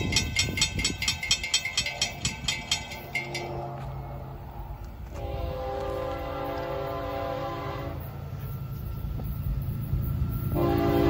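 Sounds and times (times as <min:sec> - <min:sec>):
railroad crossing bells ringing: 0:00.0 - 0:11.0
locomotive horn blowing: 0:03.2 - 0:04.5, 0:05.1 - 0:08.2, 0:10.5 - 0:11.0.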